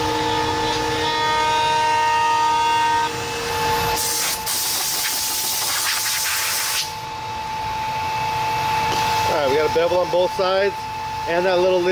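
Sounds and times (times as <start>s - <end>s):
router spindle high whine: 0.0s - 4.5s, 6.8s - 11.9s
compressed-air blow gun hiss: 4.0s - 6.9s.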